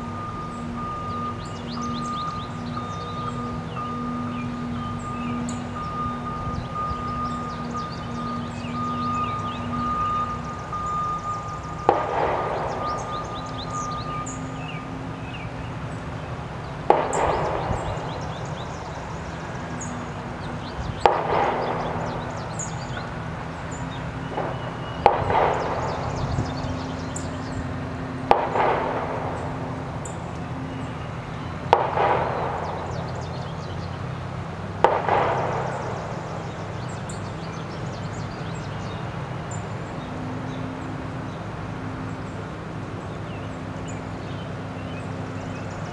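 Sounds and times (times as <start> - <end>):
small birds chirping: 0.0 - 45.9
heavy echoing knocks: 11.3 - 15.2, 16.5 - 30.8, 31.6 - 37.2.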